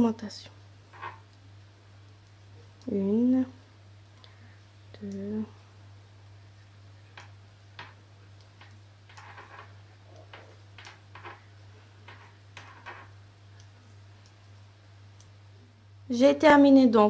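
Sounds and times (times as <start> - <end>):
steady low hum: 0.0 - 17.0
knitting needles clicking: 2.2 - 5.6, 7.1 - 15.4.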